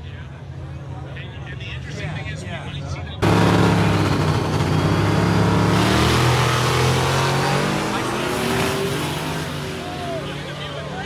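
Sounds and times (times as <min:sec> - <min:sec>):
drag racing cars accelerating: 0:03.2 - 0:11.0.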